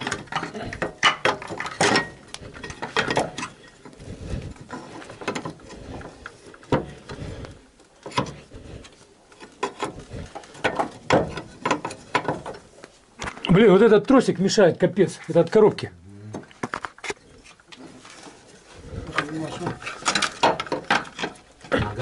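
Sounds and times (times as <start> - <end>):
metallic clanks and scrapes: 0.0 - 12.9, 16.3 - 22.0.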